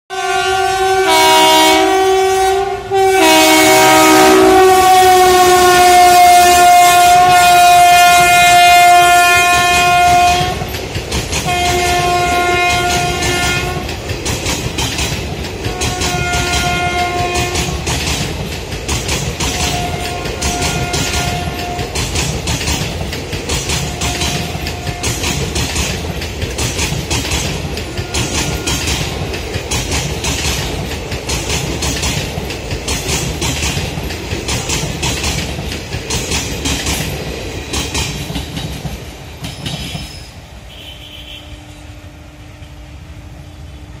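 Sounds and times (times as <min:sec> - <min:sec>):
train rumble: 0:00.1 - 0:44.0
train wheels clattering over rail joints: 0:05.8 - 0:40.5.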